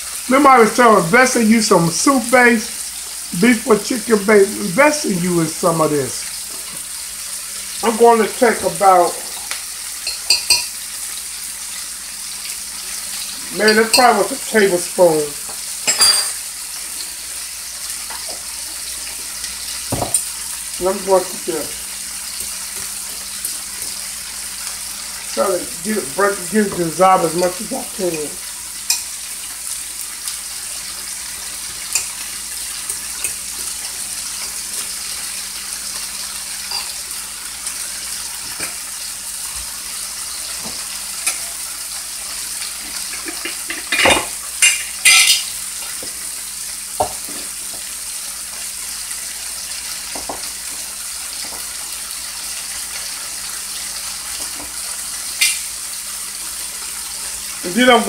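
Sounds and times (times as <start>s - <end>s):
meat sizzling in a skillet: 0.0s - 58.0s
dishes clattering: 10.0s - 10.8s, 15.5s - 16.4s, 19.9s - 20.3s, 42.8s - 45.5s, 55.4s - 55.7s
utensils clinking: 10.0s - 10.8s, 13.6s - 14.4s, 15.8s - 16.4s, 42.8s - 45.5s.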